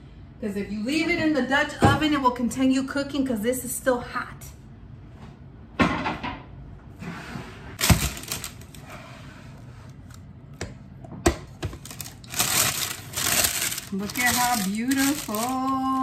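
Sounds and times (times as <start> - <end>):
parchment paper rustling: 7.8 - 9.2, 11.7 - 16.0.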